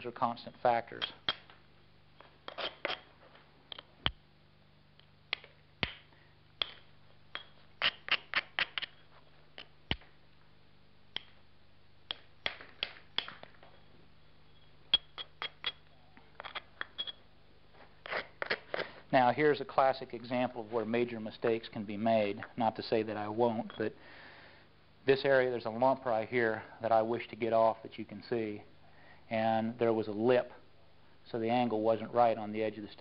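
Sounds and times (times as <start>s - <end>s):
hammerstone striking stone edge: 6.6s - 9.0s, 14.9s - 15.8s.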